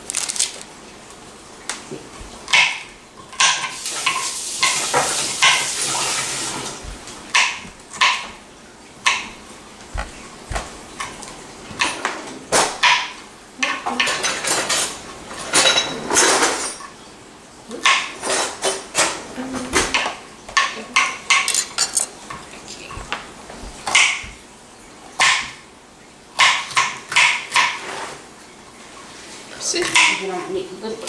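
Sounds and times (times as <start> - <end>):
knife chopping on cutting board: 2.2 - 8.4, 9.0 - 11.9, 22.9 - 24.4, 25.2 - 25.6.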